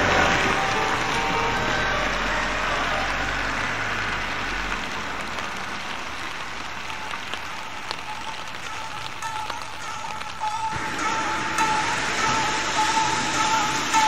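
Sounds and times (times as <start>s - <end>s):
van engine hum: 0.0s - 8.5s
tyres hissing on wet road: 0.0s - 14.0s.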